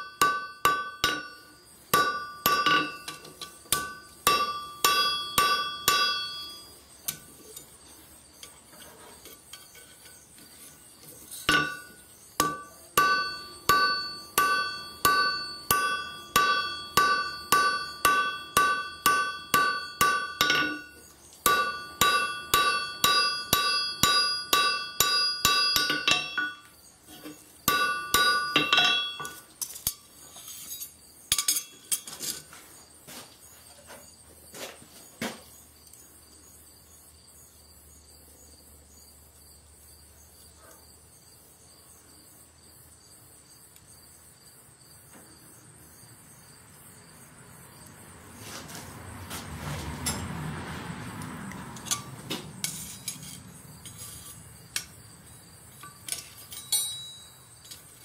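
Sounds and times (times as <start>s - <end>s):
anvil ringing: 0.0s - 6.7s, 11.5s - 26.7s, 27.7s - 29.4s, 55.8s - 57.6s
hammer striking hot steel: 0.0s - 7.3s, 11.4s - 30.0s, 55.8s - 57.4s.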